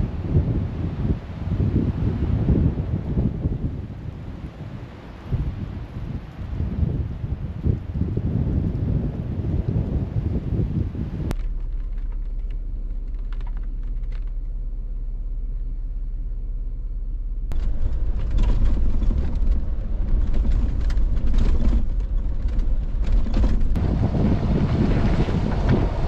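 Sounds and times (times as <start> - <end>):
car engine and road rumble: 0.0 - 26.0
rain taps: 11.3 - 14.4, 17.5 - 26.0.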